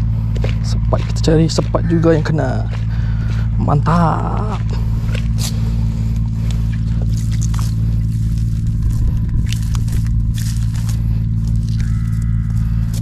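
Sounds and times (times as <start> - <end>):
low engine hum: 0.0 - 13.0
rustles and clicks: 4.6 - 13.0.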